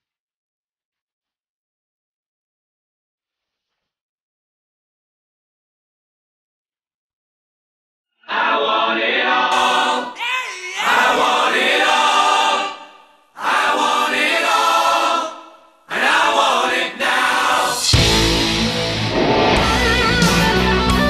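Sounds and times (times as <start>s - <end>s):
choir singing: 8.2s - 18.4s.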